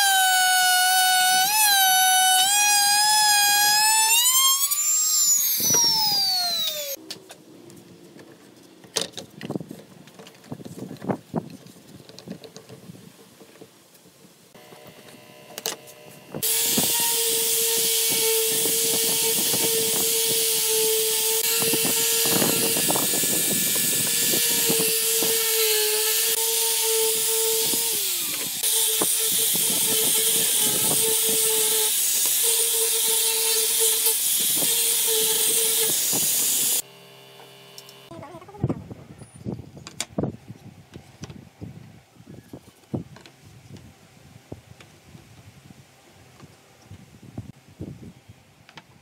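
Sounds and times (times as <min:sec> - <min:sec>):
angle grinder sanding wood: 0:00.0 - 0:07.0, 0:14.6 - 0:36.9.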